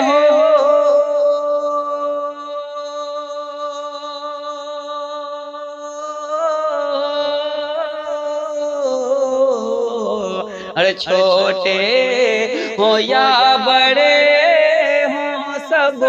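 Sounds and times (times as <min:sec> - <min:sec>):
person singing long note: 0:00.0 - 0:10.4.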